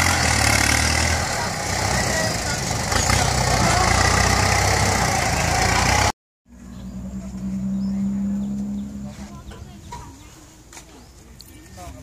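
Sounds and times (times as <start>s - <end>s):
tractor diesel engine working hard: 0.0s - 6.1s
tractor engine idling: 0.0s - 6.1s.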